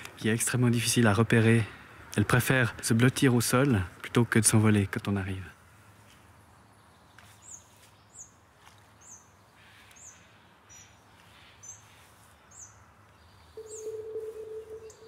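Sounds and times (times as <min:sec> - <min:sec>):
outdoor background noise: 0:00.0 - 0:15.0
small bird chirping: 0:06.6 - 0:15.0.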